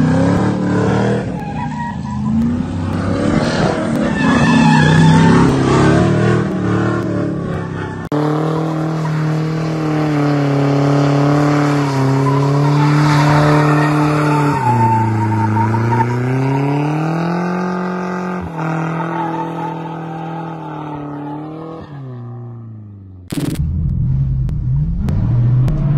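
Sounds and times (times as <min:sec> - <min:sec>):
engine at high revs: 0:00.0 - 0:01.4, 0:02.2 - 0:23.6
tyres squealing: 0:11.7 - 0:17.0.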